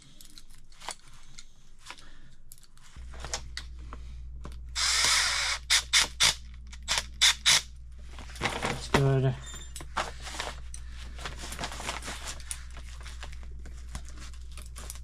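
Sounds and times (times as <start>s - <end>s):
low steady hum: 0.0s - 15.0s
cordless drill running: 4.8s - 7.6s.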